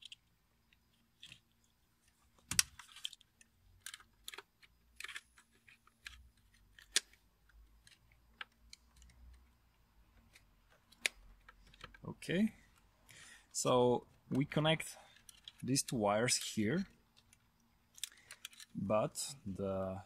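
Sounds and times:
plastic connector clicks and rattles: 2.4s - 9.4s, 17.1s - 18.8s.

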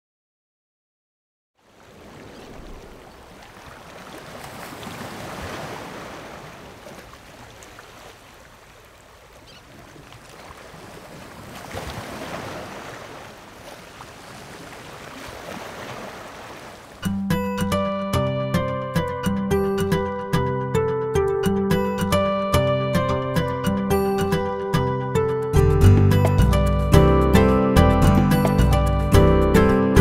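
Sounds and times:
sea waves washing in: 1.6s - 17.1s
plucked string tune: 17.0s - 30.0s.

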